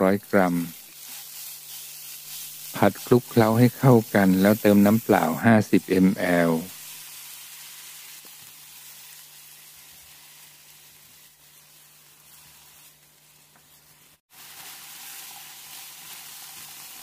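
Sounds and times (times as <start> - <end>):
meat sizzling in a frying pan: 0.0 - 17.0
spatula stirring in a pan: 0.7 - 3.4.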